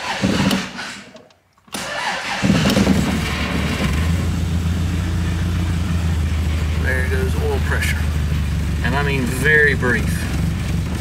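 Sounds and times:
engine cranking and starting: 0.0s - 1.0s, 1.7s - 4.7s.

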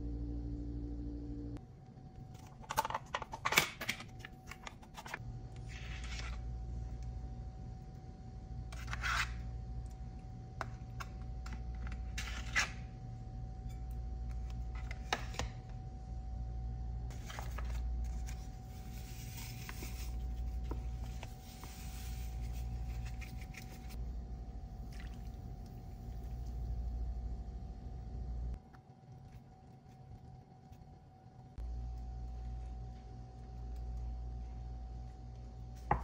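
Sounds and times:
steady low hum: 0.0s - 3.2s, 3.9s - 36.0s.

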